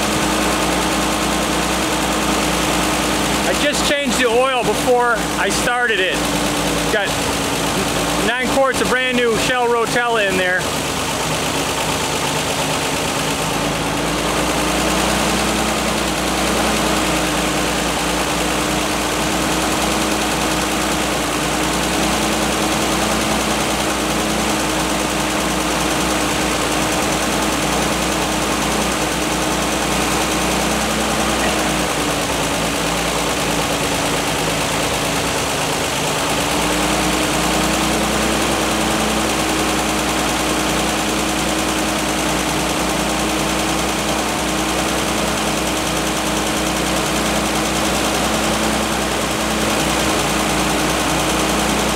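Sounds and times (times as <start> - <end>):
truck engine idling: 0.0 - 51.9.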